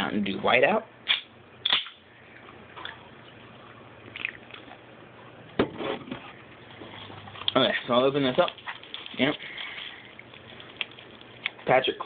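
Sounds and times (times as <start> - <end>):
soda fizzing: 7.0 - 12.0.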